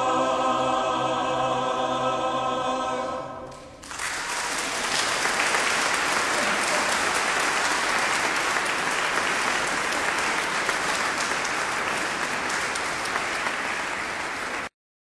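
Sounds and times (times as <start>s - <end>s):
audience applauding: 3.8s - 14.7s.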